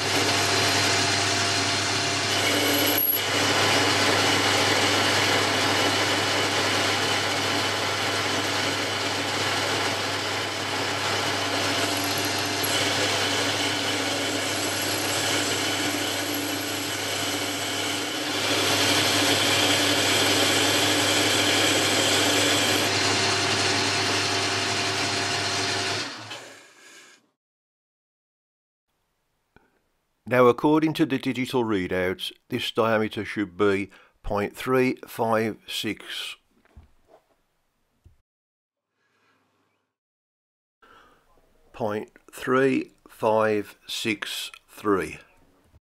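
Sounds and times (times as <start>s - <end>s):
lathe turning metal: 0.0s - 26.4s.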